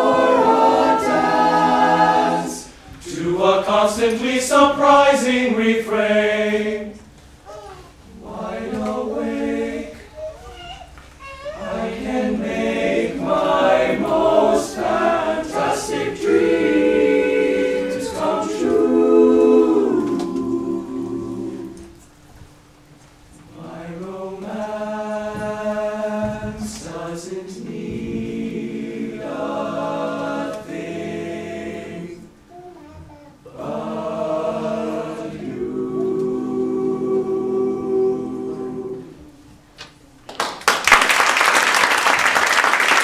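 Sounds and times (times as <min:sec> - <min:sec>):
male a cappella group singing: 0:00.0 - 0:07.1, 0:08.1 - 0:10.0, 0:11.6 - 0:22.0, 0:23.5 - 0:32.4, 0:33.5 - 0:39.3
audience applause: 0:40.3 - 0:43.0.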